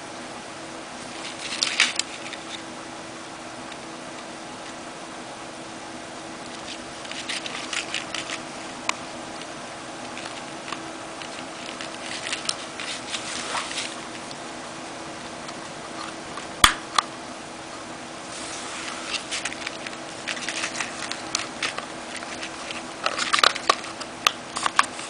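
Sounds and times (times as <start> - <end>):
faint steady hum: 0.0 - 25.0.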